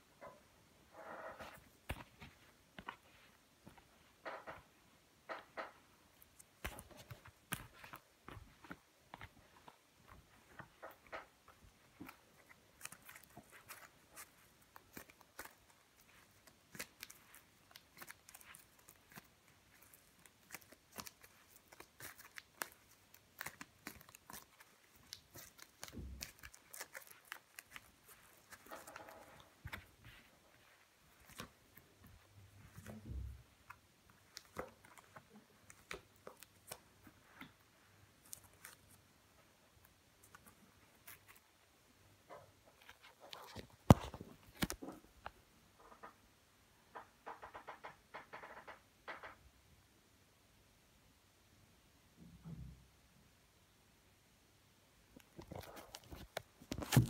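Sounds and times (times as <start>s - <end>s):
playing cards shuffled and dealt: 1.4s - 3.8s, 5.4s - 9.8s, 42.8s - 45.0s.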